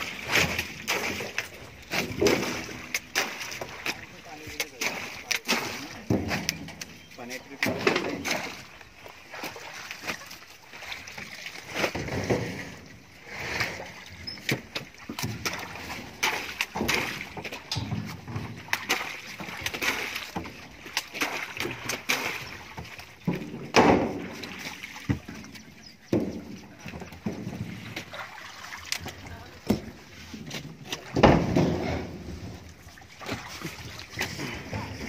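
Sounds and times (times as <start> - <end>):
water splashing in a tank: 0.0 - 35.0
bananas knocking and thudding: 31.1 - 32.0.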